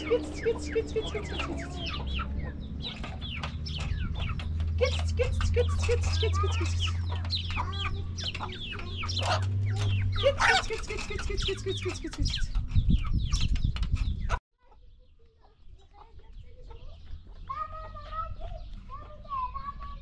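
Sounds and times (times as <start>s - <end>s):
hens clucking: 0.0s - 13.4s
beaks tapping on metal tray: 2.8s - 12.6s.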